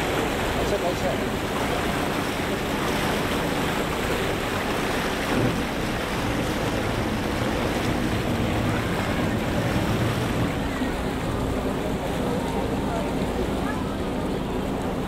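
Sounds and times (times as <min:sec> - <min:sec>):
water churning past boat hull: 0:00.0 - 0:15.0.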